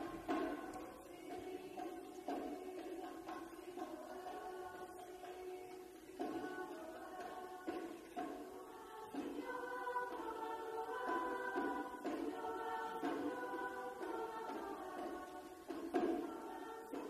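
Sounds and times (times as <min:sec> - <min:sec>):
chorus singing chords: 0:00.0 - 0:17.0.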